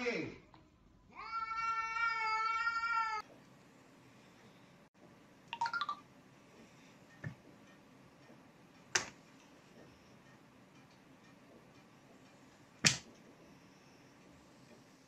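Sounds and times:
cat yowling: 0:01.2 - 0:03.2.

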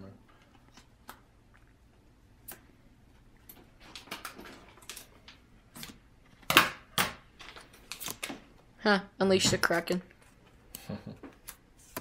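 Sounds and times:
cards flipping clicks: 0:05.8 - 0:08.4.

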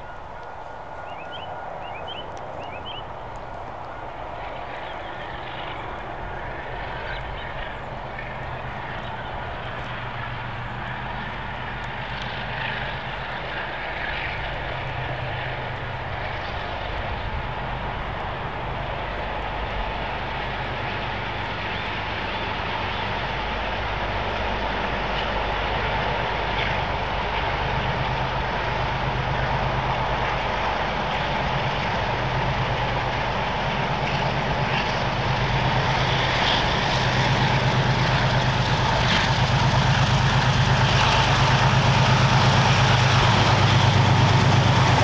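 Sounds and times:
locomotive engine drone: 0:00.0 - 0:45.0
bird chirps: 0:01.0 - 0:03.1.

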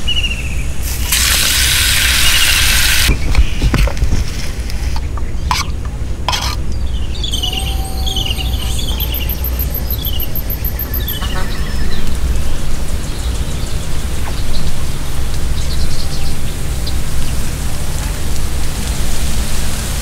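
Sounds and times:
bird chirping: 0:06.7 - 0:14.8
insect trilling: 0:07.2 - 0:11.8.

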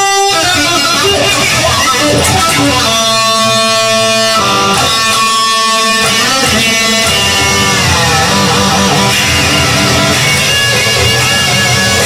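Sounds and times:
guitar chords ringing: 0:00.0 - 0:12.0.

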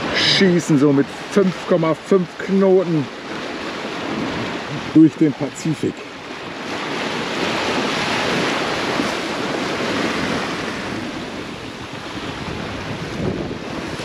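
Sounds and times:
water rushing along a hull: 0:00.0 - 0:14.0
wind on microphone: 0:03.1 - 0:05.0, 0:06.0 - 0:14.0.

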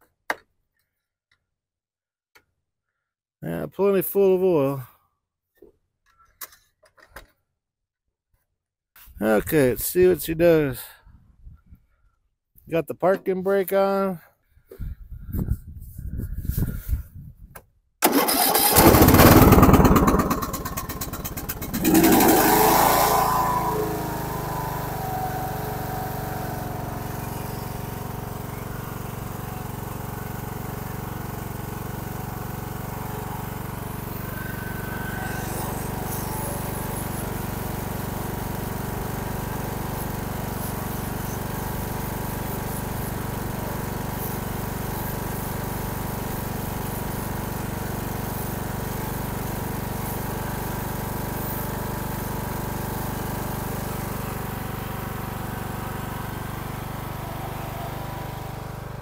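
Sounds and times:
riding mower engine running: 0:18.0 - 0:59.0.

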